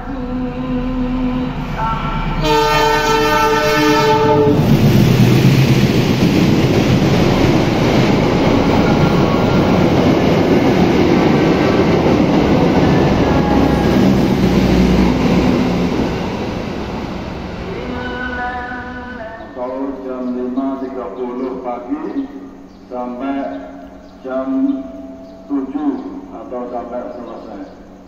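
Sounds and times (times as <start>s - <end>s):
train wheels on rails: 1.5s - 20.6s
train horn blast: 1.8s - 4.7s.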